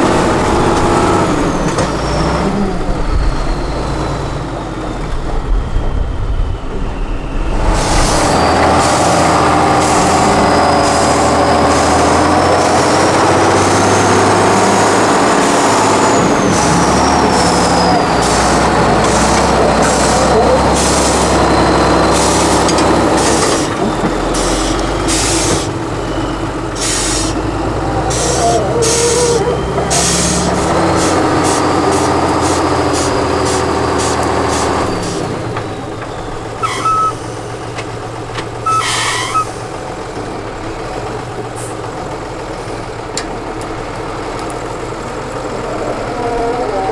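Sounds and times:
diesel truck engine under load: 0:00.0 - 0:46.9
thin high whistle: 0:36.2 - 0:37.3, 0:38.6 - 0:39.6.

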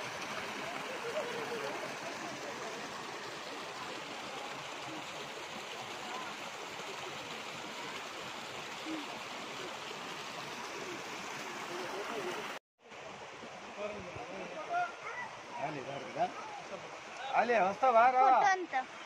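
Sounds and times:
faint voices: 0:00.0 - 0:09.9
waterfall stream running: 0:00.0 - 0:19.0.

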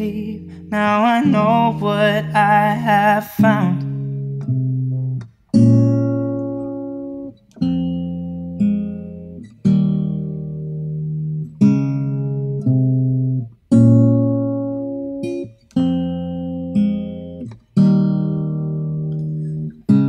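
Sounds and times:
guitar playing slow chords: 0:00.0 - 0:20.0.

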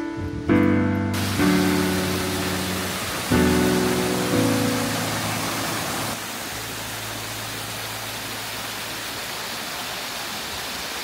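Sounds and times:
piano notes: 0:00.0 - 0:07.1
stream rushing over rocks: 0:01.2 - 0:11.0.

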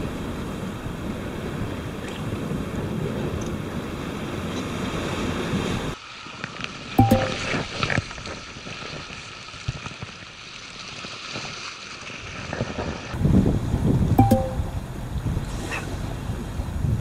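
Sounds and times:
sea waves: 0:00.0 - 0:06.0
tone stepping down in pitch: 0:07.0 - 0:07.5, 0:14.2 - 0:14.8
wind buffeting microphone: 0:12.7 - 0:17.0.

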